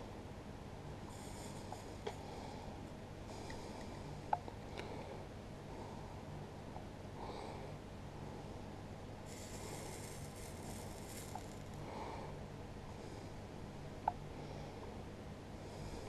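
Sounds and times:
low steady hum: 0.0s - 16.0s
person breathing through nose: 1.1s - 4.1s, 9.3s - 12.4s.

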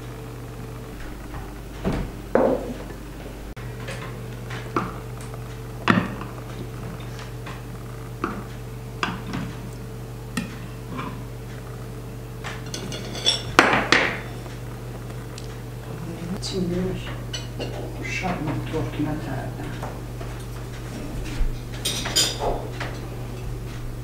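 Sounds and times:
steady low hum: 0.0s - 24.0s
dishes and cutlery clinking: 12.5s - 14.4s, 17.3s - 18.0s, 21.2s - 23.5s.

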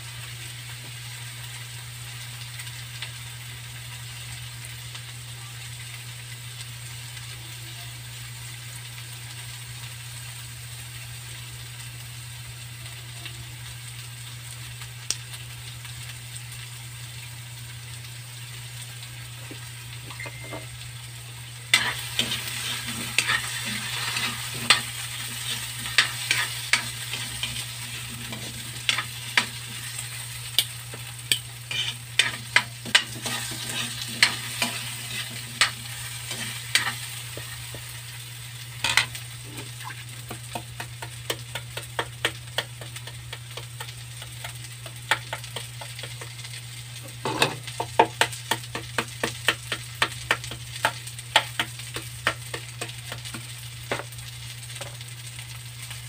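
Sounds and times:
potatoes sizzling in hot oil: 0.0s - 56.0s
metal spatula scraping wok: 21.7s - 29.9s, 31.3s - 37.4s, 47.2s - 47.7s.

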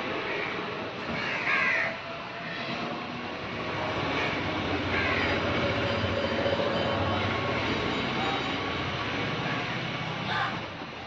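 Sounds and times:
passing motor vehicle rumble: 2.6s - 11.0s.

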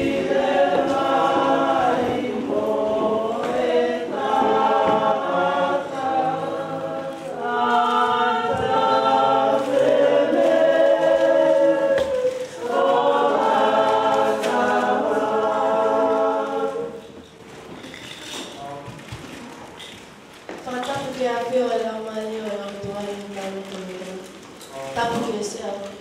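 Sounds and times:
women singing together: 0.0s - 17.2s.

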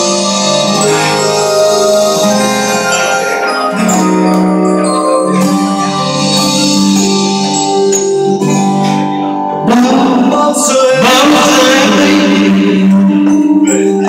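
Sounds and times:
electronic organ and keyboard chords: 0.0s - 14.0s
man singing into a microphone: 9.6s - 14.0s.

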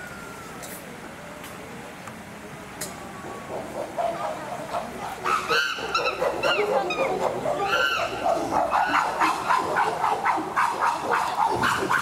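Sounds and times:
chimpanzees calling: 3.5s - 12.0s.

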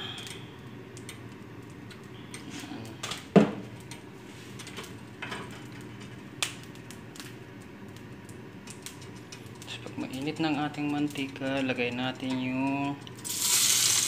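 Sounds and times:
oil crackling in a frying pan: 0.0s - 14.0s.

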